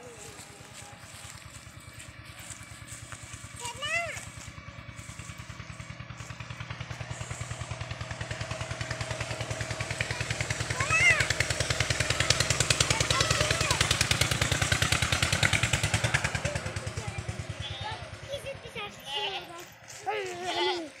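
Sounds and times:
small engine running: 0:00.0 - 0:21.0.

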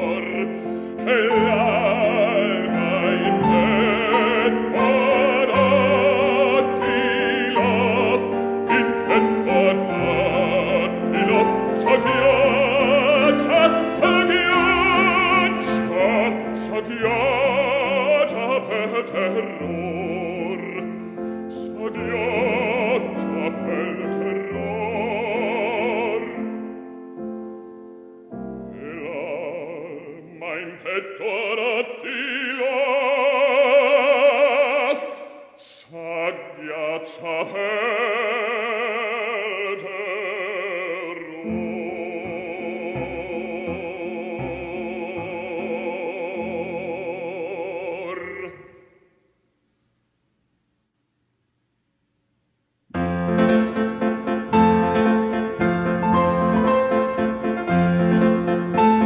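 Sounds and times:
bass-baritone singing opera: 0:00.0 - 0:26.8, 0:28.6 - 0:49.0
piano accompaniment: 0:00.0 - 0:35.2, 0:36.2 - 0:48.4, 0:52.9 - 0:59.0.

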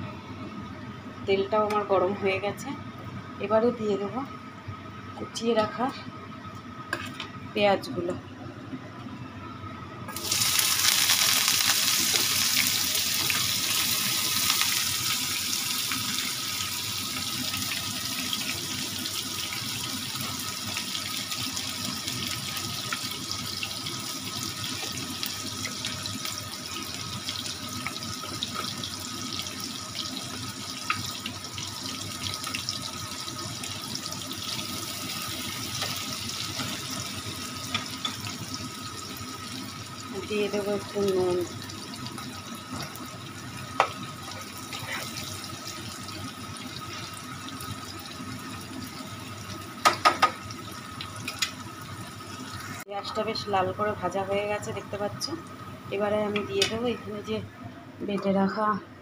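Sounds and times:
onions sizzling in hot oil: 0:10.1 - 0:57.3.

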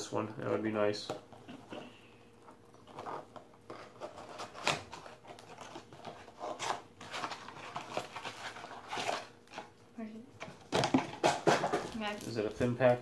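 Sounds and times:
plastic wrapping crinkling: 0:02.4 - 0:09.8, 0:10.4 - 0:13.0.

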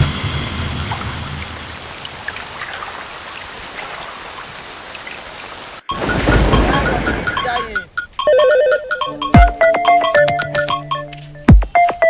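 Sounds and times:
low rumble: 0:00.0 - 0:02.3
rain-like hiss: 0:00.0 - 0:07.8.

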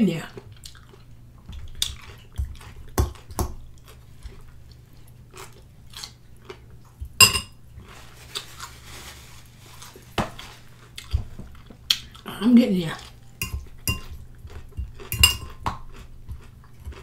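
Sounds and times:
crunchy chewing: 0:00.4 - 0:07.2, 0:13.0 - 0:17.0
fork clinking against glass bowl: 0:07.2 - 0:07.6, 0:13.4 - 0:14.2, 0:14.8 - 0:15.7.

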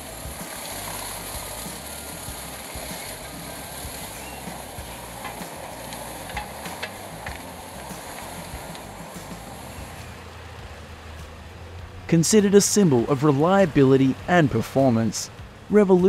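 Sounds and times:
branches being chipped: 0:00.0 - 0:11.4
wood chipper rumbling: 0:00.0 - 0:16.0.

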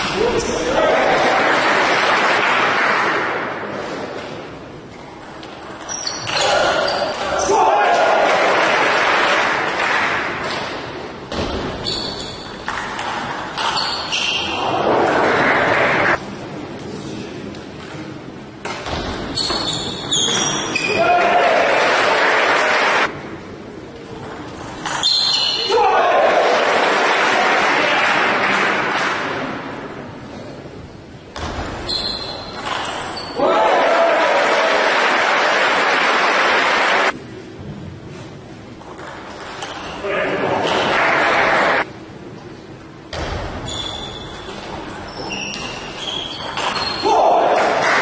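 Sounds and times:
crowd noise in large hall: 0:00.0 - 0:48.0
table tennis ball pinging: 0:11.3 - 0:14.1, 0:31.4 - 0:33.4.

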